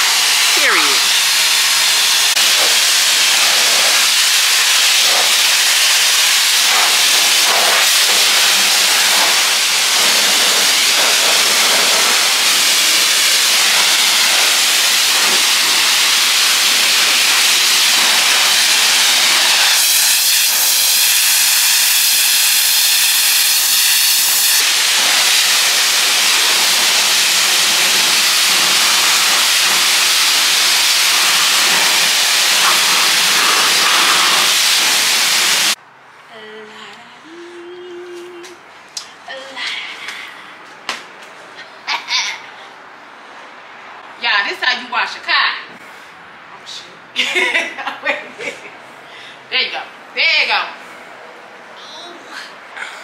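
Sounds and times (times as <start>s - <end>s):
water spray hissing on car: 0.0s - 35.8s.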